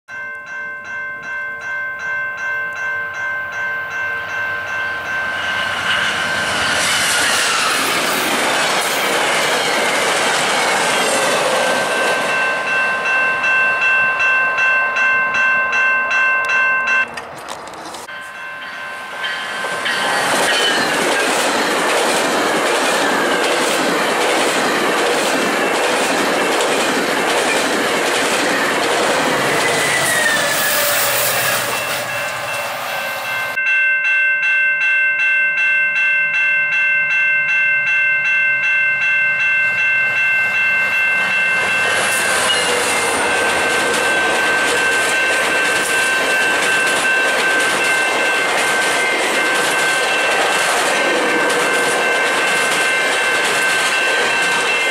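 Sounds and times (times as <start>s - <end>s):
crossing bell ringing: 0.1s - 54.9s
train wheels clicking over rail joints: 5.9s - 12.4s, 19.7s - 32.9s, 41.8s - 54.9s.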